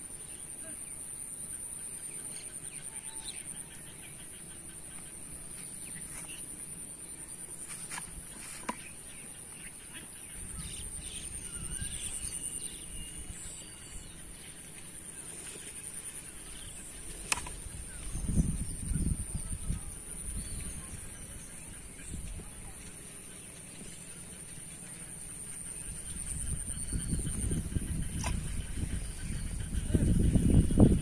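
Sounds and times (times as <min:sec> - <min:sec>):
bird calls: 0:00.2 - 0:31.0
wind on microphone: 0:10.4 - 0:13.6, 0:16.4 - 0:22.8, 0:25.7 - 0:31.0.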